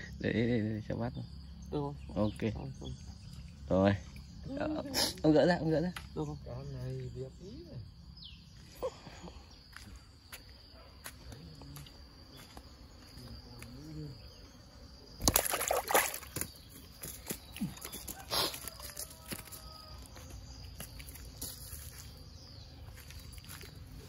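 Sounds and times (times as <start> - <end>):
high insect drone: 0.0 - 24.0
water sloshing and splashing: 15.2 - 16.6.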